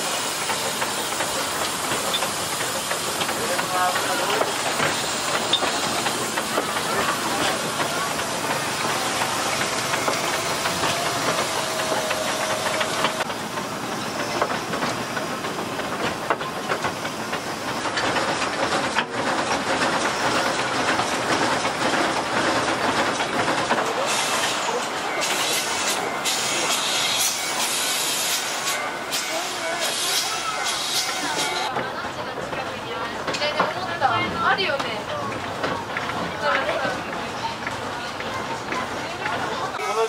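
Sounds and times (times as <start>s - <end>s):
steam hissing: 0.0s - 31.7s
train running on rails: 0.0s - 40.0s.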